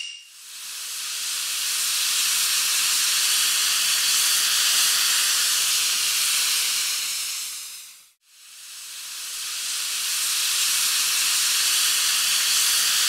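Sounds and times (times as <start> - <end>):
loud airy hiss: 0.3 - 13.0.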